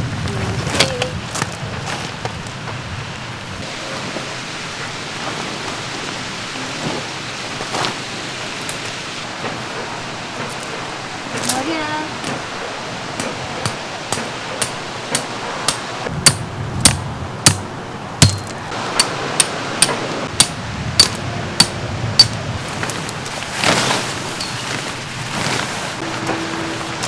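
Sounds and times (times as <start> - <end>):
tent pegs being hammered: 13.2 - 22.4
short rustle: 22.6 - 27.0.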